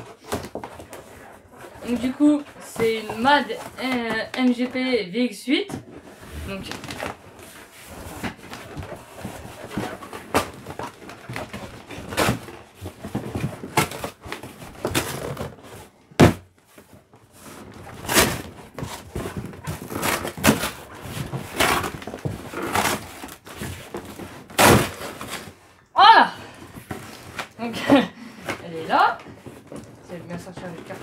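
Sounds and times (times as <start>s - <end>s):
cardboard scraping and rustling: 0.0s - 4.9s, 5.8s - 25.7s
knocks and thuds on box: 16.2s - 16.5s.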